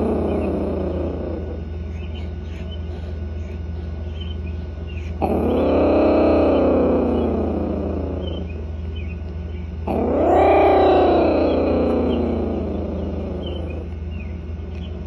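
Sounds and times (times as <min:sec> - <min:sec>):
kitten growling: 0:00.0 - 0:01.7, 0:05.1 - 0:08.6, 0:09.8 - 0:14.0.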